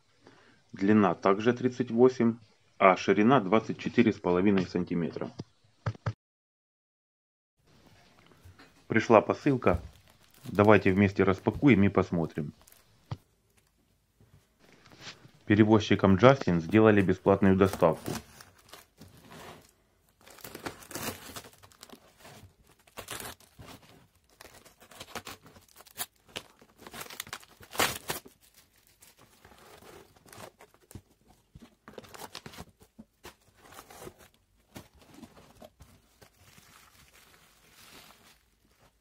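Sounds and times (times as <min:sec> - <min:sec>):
plastic film crinkling and tearing: 0:09.4 - 0:13.7, 0:16.6 - 0:39.0
cardboard rustling: 0:09.4 - 0:13.8, 0:16.6 - 0:39.0.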